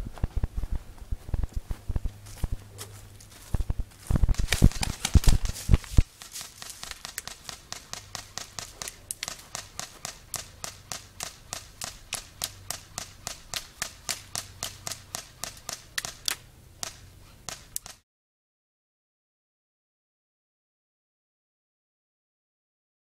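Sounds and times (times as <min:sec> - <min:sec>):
airsoft gun shots: 0:06.6 - 0:18.0.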